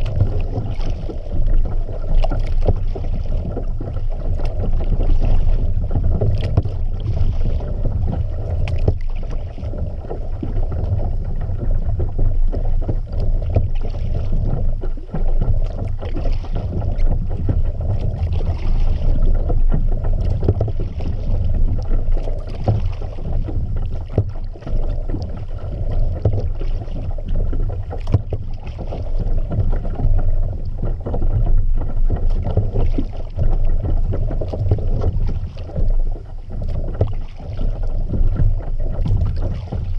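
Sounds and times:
water splashing against kayak: 0:00.0 - 0:39.9
wind rumble on microphone: 0:00.0 - 0:39.9.

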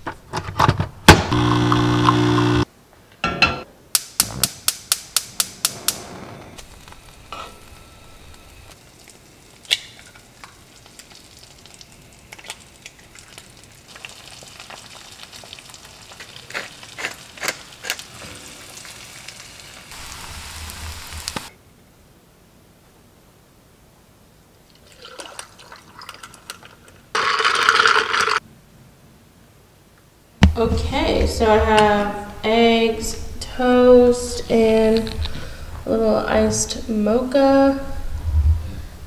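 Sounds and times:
coffee machine pump humming: 0:01.2 - 0:02.6
eggs sizzling in a pan: 0:01.3 - 0:02.7, 0:06.6 - 0:21.5.

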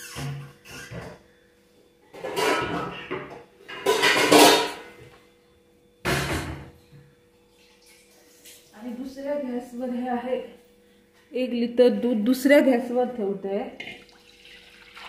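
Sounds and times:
faint steady hum: 0:00.0 - 0:15.0
pots clattering: 0:02.2 - 0:04.9.

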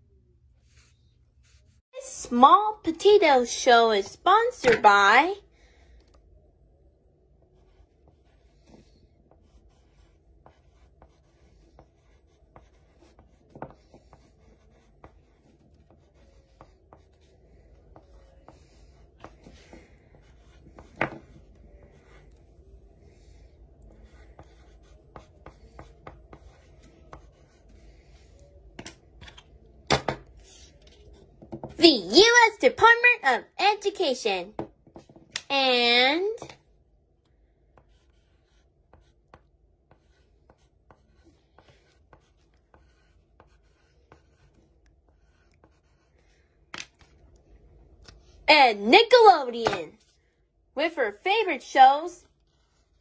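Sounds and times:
pencil scratching on paper: 0:07.4 - 0:22.6, 0:23.2 - 0:28.6, 0:30.4 - 0:32.4, 0:37.6 - 0:49.2, 0:51.3 - 0:53.0.

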